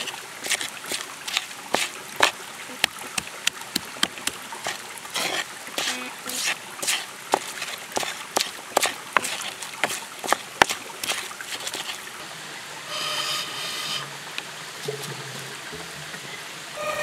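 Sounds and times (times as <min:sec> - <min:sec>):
stone pestle crushing in mortar: 0:00.5 - 0:12.0
brief whistling tone: 0:16.8 - 0:17.0.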